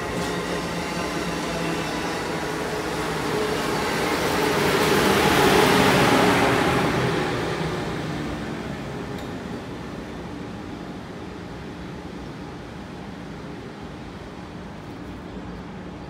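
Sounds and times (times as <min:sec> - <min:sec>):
train wheels on rails: 0:00.0 - 0:12.0
electric train passing: 0:00.0 - 0:14.9.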